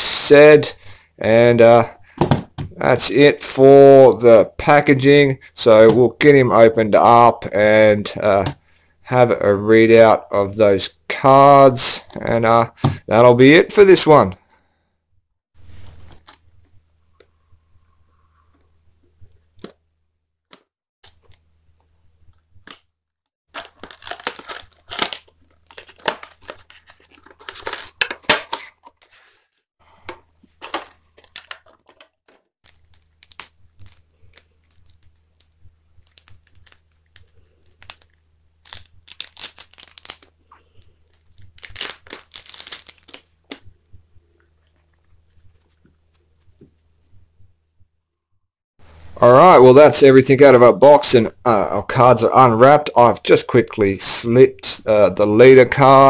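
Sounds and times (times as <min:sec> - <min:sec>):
plastic wrapping tearing and crinkling: 0:23.5 - 0:29.1, 0:30.6 - 0:40.4, 0:41.1 - 0:43.6.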